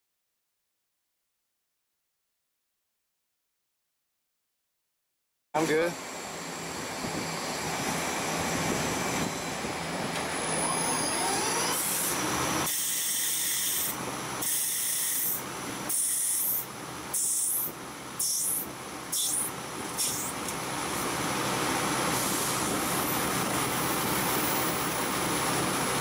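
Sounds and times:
lathe machine noise: 5.6s - 26.0s
short high hissy cutting bursts: 11.7s - 20.4s.

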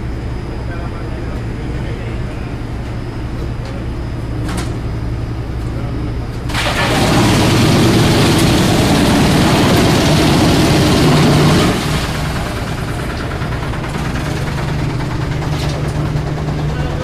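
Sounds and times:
wood chipper grinding log: 6.5s - 17.0s
wood chipper running empty: 6.5s - 17.0s.

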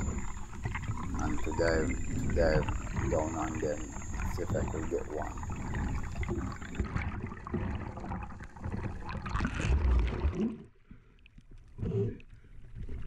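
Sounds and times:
loud splashing: 0.0s - 7.0s
small splashes of water: 0.0s - 10.7s
water rushing and gurgling: 0.0s - 10.7s.

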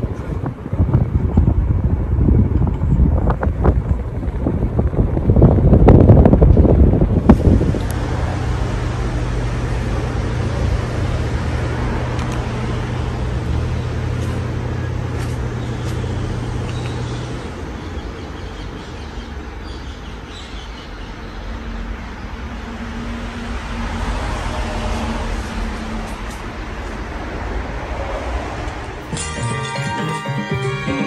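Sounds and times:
low motor hum: 0.0s - 18.0s
ceiling fan air rush: 0.0s - 29.1s.

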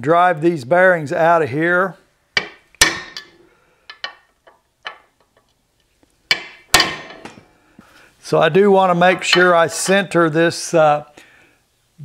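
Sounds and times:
hammer striking metal socket: 6.3s - 7.4s.

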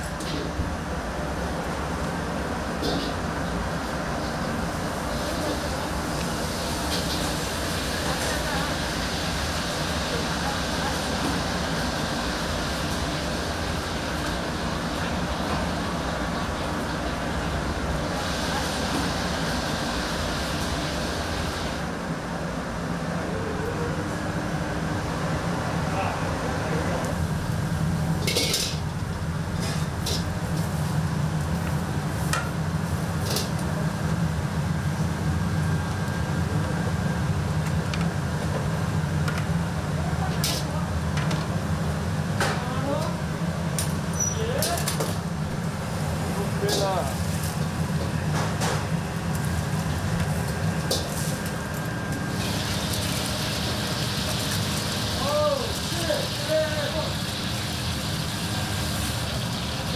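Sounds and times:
kitchen equipment humming: 0.0s - 21.9s, 23.2s - 59.9s
gas burner roaring: 0.0s - 59.9s
metal utensils clanking on cookware: 28.2s - 28.8s.

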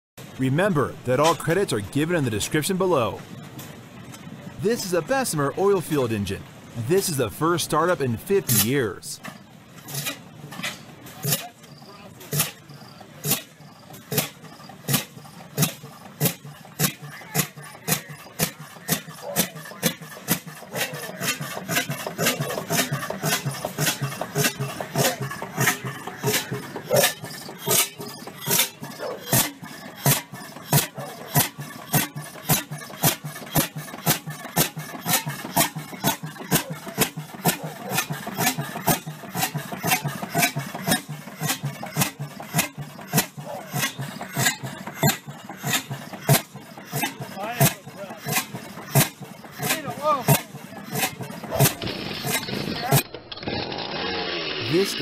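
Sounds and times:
engine exhaust pops: 12.3s - 19.0s.

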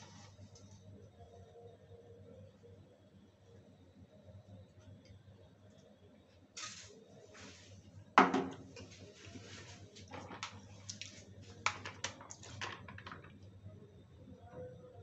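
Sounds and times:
cookware knock: 8.2s - 8.6s.

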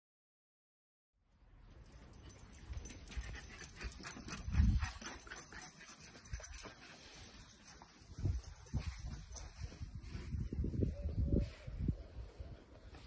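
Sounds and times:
dogs scuffling on grass: 3.0s - 10.9s.

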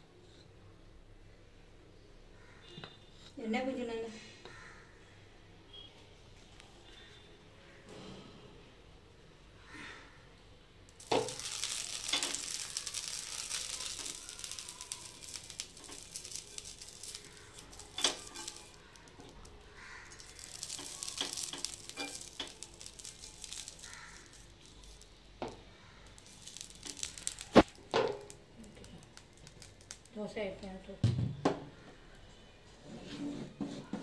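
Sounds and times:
hot griddle sizzling: 10.9s - 30.3s.

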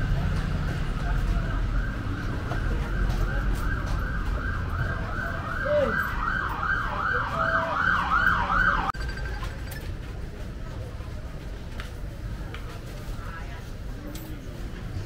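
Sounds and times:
street traffic rumble: 0.0s - 15.0s
emergency siren yelping: 0.9s - 9.0s.

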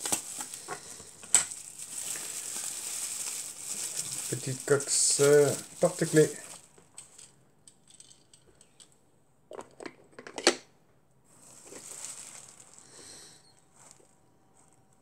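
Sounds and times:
plastic wrapping rustling: 0.0s - 7.3s, 11.3s - 15.0s.

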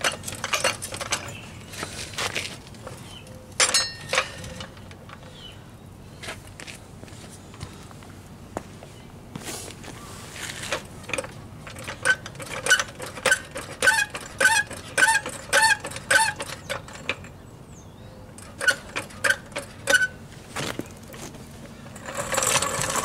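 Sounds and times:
short squeaks with clicks: 10.6s - 17.3s, 18.4s - 20.2s.

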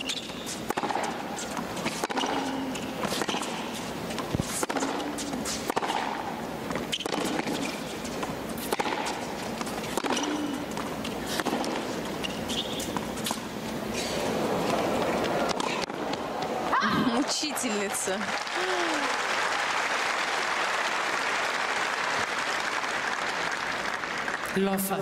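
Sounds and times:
tennis racket hitting ball: 0.0s - 16.5s.

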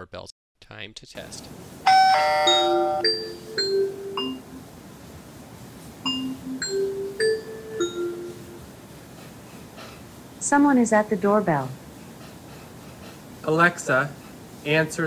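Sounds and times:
bell-like melody: 1.9s - 4.6s, 6.1s - 8.6s
doorbell chime: 1.9s - 4.6s, 6.1s - 8.5s.

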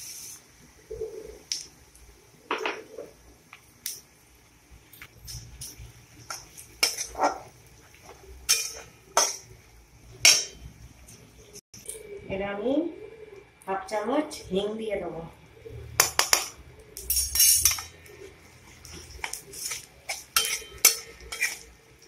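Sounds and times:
spices frying in oil: 0.0s - 2.5s, 3.1s - 12.1s, 15.9s - 22.0s
metal spatula scraping a metal pan: 6.3s - 7.5s, 8.4s - 9.4s, 18.8s - 21.8s.

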